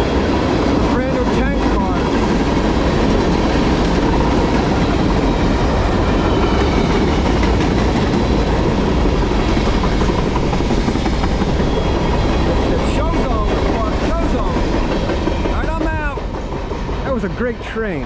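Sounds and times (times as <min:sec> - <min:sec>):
freight train rolling past: 0:00.0 - 0:18.0
steel wheels on rails: 0:00.0 - 0:18.0.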